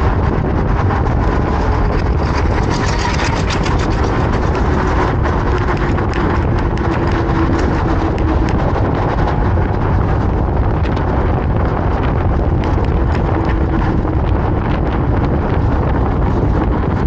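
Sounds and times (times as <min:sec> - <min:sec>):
wind buffeting microphone: 0:00.0 - 0:17.0
small clicks and rattles: 0:01.8 - 0:08.8.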